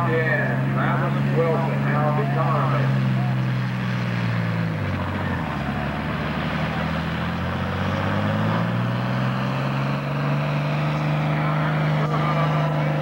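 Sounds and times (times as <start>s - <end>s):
tractor engine under heavy load: 0.0s - 13.0s.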